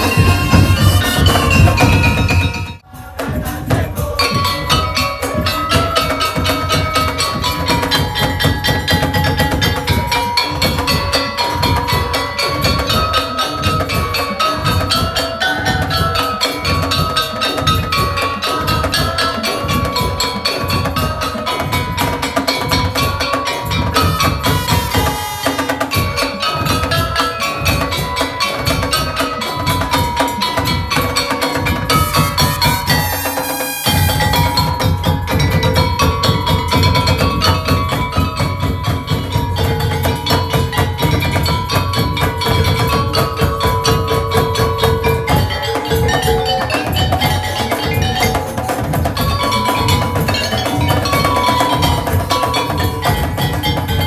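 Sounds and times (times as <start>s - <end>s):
barrel drums beating: 0.0s - 54.0s
mallet percussion melody: 0.0s - 54.0s.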